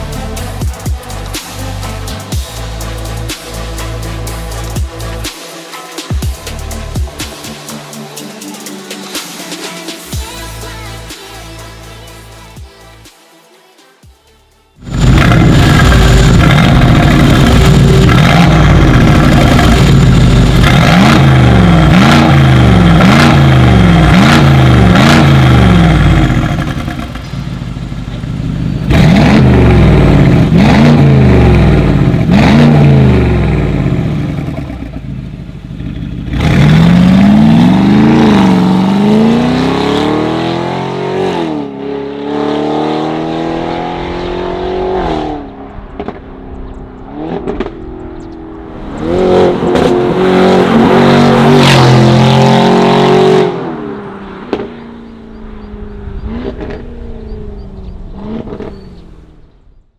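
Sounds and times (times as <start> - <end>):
car engine revving: 14.8 - 59.9.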